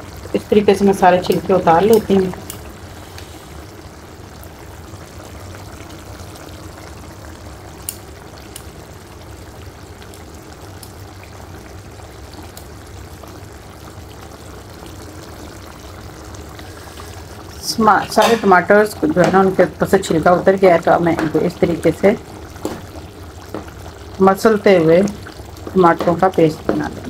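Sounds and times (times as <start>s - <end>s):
gravy simmering and sizzling: 0.0s - 27.0s.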